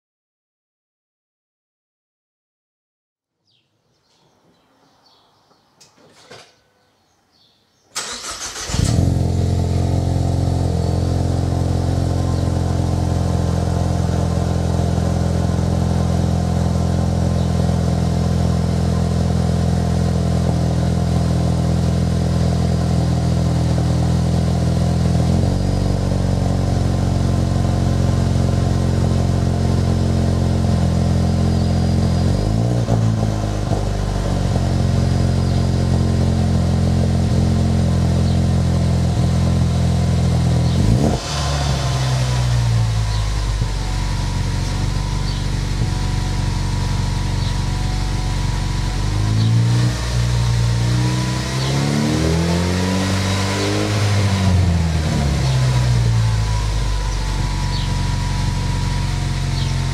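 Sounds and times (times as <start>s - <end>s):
car starter cranking: 7.9s - 9.2s
car engine idling: 8.0s - 53.0s, 53.6s - 59.9s.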